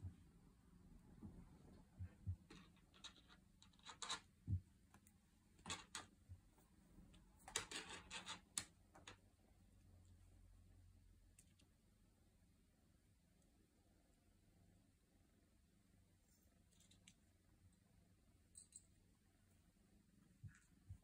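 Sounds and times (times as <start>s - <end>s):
kittens scratching and rustling: 5.6s - 9.1s.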